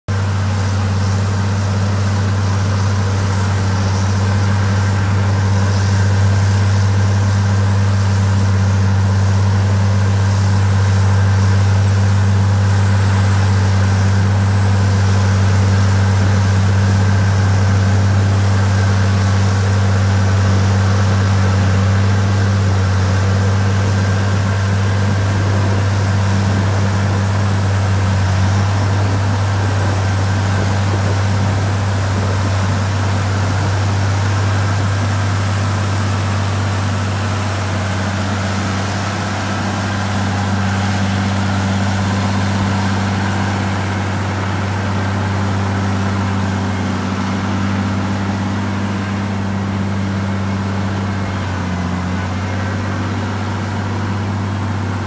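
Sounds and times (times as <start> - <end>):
high whine: 0.1 - 55.0
tractor diesel engine droning: 0.1 - 55.0.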